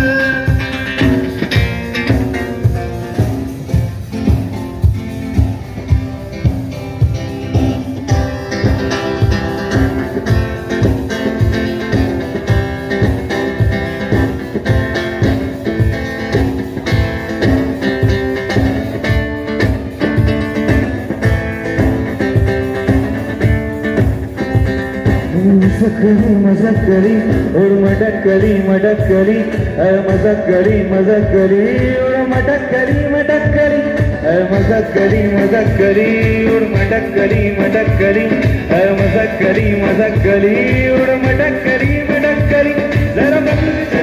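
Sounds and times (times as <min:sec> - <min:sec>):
man singing: 0:00.0 - 0:03.8, 0:17.9 - 0:44.0
acoustic guitar strumming: 0:00.0 - 0:44.0
drum kit beat: 0:00.0 - 0:44.0.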